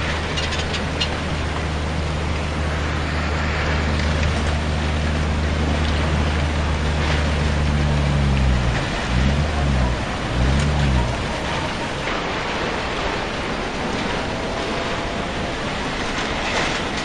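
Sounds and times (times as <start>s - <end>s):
low wavering drone: 0.0s - 12.8s
floodwater rushing roar: 0.0s - 17.0s.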